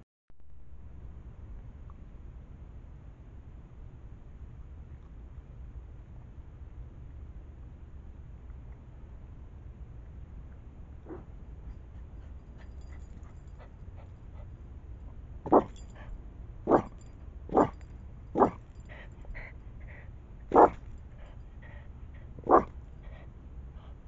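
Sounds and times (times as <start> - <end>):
dog barking: 11.1 - 11.3, 15.5 - 15.8, 16.7 - 17.8, 18.4 - 18.6, 20.5 - 20.8, 22.4 - 22.7.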